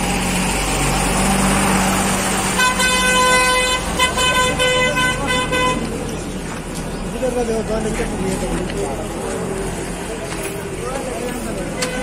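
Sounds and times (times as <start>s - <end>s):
street traffic noise: 0.0s - 12.0s
vehicle horn honking: 2.6s - 5.9s.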